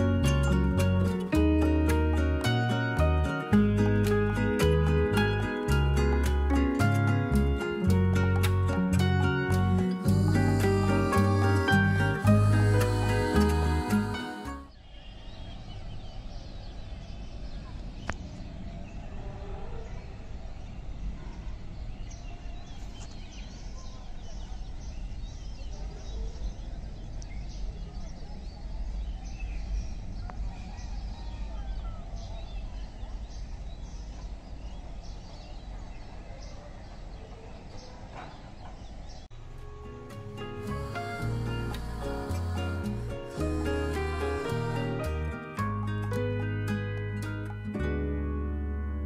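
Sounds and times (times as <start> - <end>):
steady low rumble: 3.0 - 14.6, 39.3 - 46.1.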